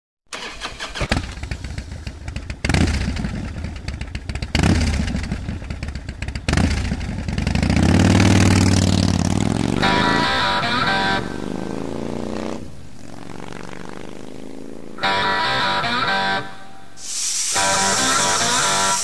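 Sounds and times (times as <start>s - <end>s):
motorcycle engine revving: 0.3s - 19.0s.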